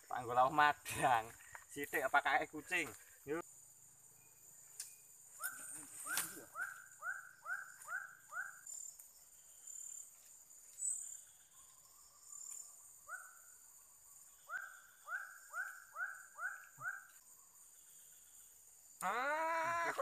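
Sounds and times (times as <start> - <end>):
high insect buzz: 0.0 - 20.0
animal calling in short notes: 19.0 - 20.0.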